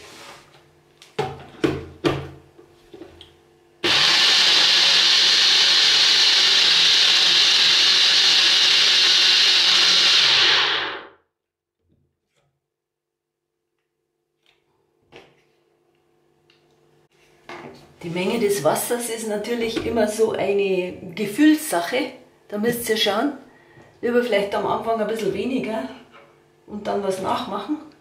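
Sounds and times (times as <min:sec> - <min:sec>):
blender motor running: 0:03.8 - 0:11.2.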